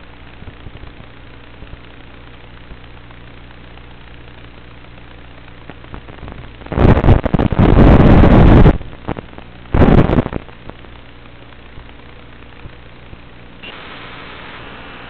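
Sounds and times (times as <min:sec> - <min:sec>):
steady low hum: 0:00.0 - 0:15.0
radio static bursts: 0:04.0 - 0:15.0.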